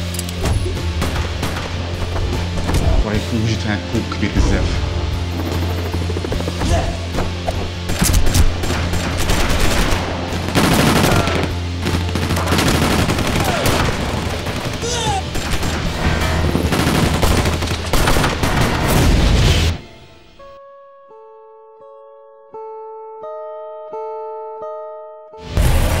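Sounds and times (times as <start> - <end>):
low background music drone: 0.0 - 26.0
automatic gunfire: 8.0 - 15.9.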